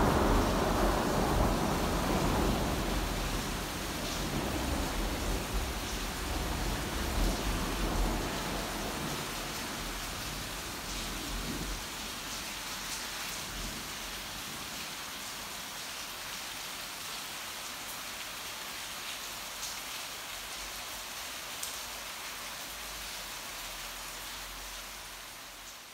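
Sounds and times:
heavy rain falling: 0:00.0 - 0:25.9.

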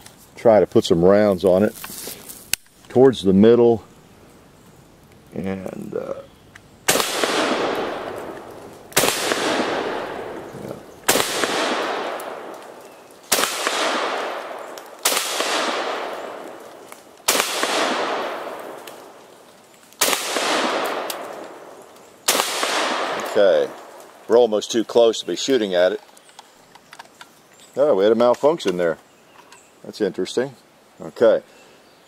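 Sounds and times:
rifle shots with echo: 0:06.9 - 0:19.2, 0:20.0 - 0:24.0.

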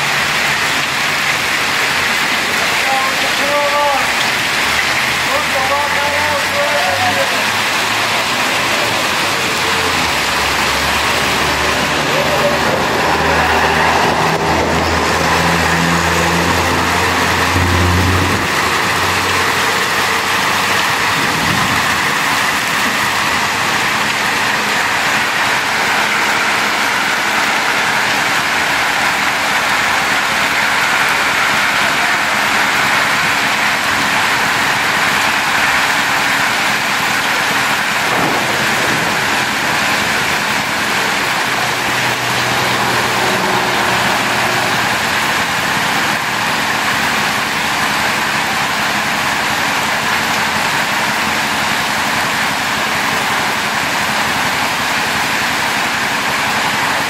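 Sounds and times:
heavy rain and hail on street: 0:00.0 - 0:57.0
low engine hum: 0:07.6 - 0:48.2.

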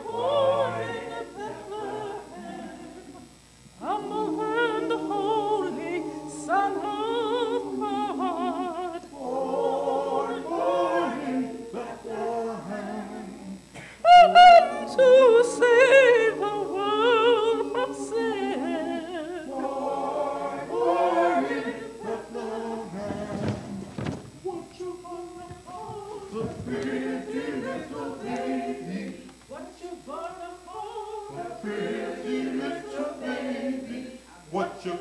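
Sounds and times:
choir singing a cappella: 0:00.0 - 0:35.0.

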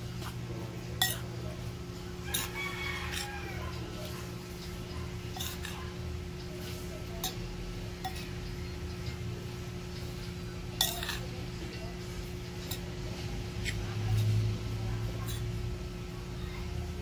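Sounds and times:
steady low hum: 0:00.0 - 0:17.0
utensil clinking against bowl: 0:01.0 - 0:01.4, 0:02.2 - 0:09.2, 0:10.7 - 0:11.9, 0:12.6 - 0:13.0.

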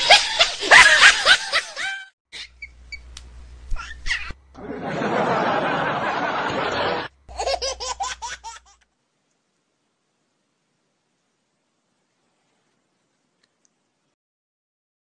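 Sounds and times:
person laughing: 0:00.0 - 0:02.6, 0:04.1 - 0:08.7.

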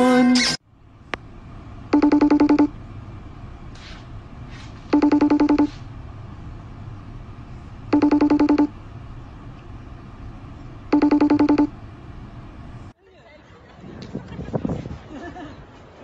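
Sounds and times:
low hum: 0:00.6 - 0:13.0
electronic phone ringer trilling: 0:01.9 - 0:02.7, 0:04.9 - 0:05.8, 0:07.9 - 0:08.7, 0:10.9 - 0:11.7.

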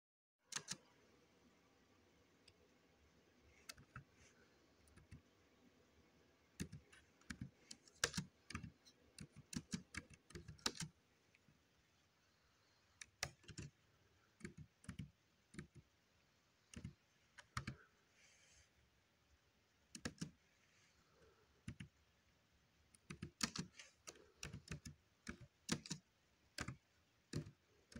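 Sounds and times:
laptop keyboard typing: 0:00.5 - 0:01.0, 0:03.5 - 0:04.2, 0:04.8 - 0:05.3, 0:06.6 - 0:11.5, 0:12.9 - 0:15.9, 0:16.6 - 0:17.9, 0:19.9 - 0:20.4, 0:21.2 - 0:22.0, 0:22.9 - 0:27.9.

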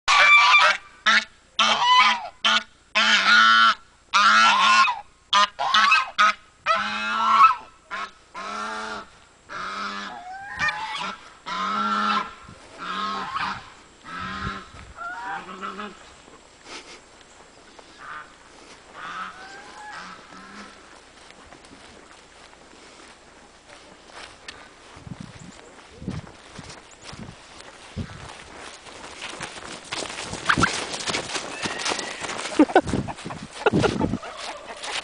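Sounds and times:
geese honking: 0:00.1 - 0:16.3, 0:17.8 - 0:21.9, 0:30.4 - 0:35.0.

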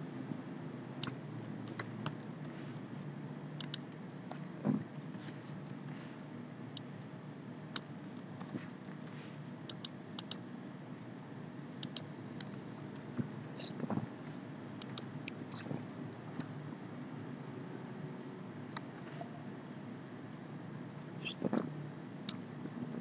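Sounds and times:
steady low hum: 0:00.0 - 0:23.0
mouse and keyboard clicks: 0:03.6 - 0:04.5, 0:09.7 - 0:10.4, 0:11.8 - 0:13.9, 0:14.8 - 0:15.7.

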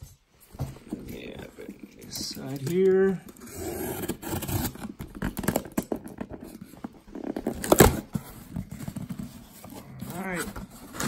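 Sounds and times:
knife cutting cardboard box: 0:03.4 - 0:05.6, 0:07.4 - 0:11.0
cardboard ripping: 0:07.1 - 0:11.0.

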